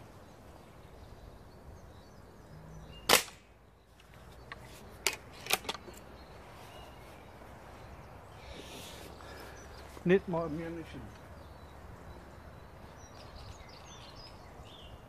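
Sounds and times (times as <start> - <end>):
air rifle shot: 3.1 - 3.5.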